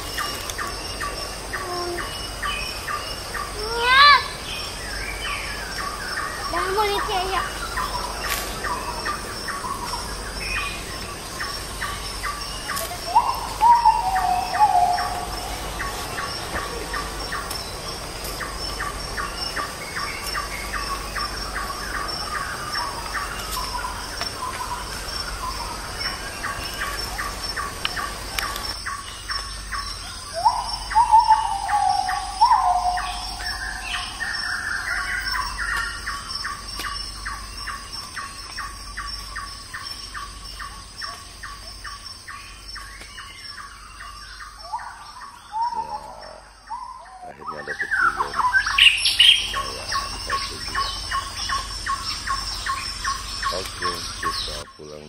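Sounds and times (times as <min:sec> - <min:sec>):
sweeping bird call: 0:00.0 - 0:55.0.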